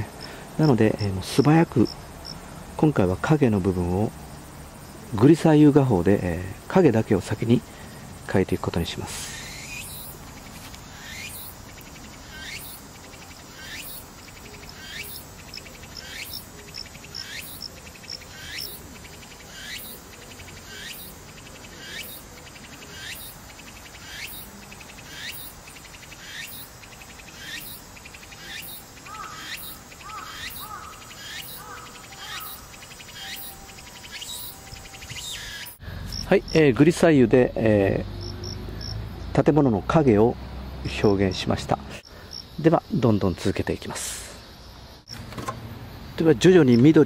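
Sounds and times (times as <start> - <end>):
insect buzzing call: 9.1 - 36.6, 37.4 - 39.3
faint bird chirps: 9.2 - 36.5.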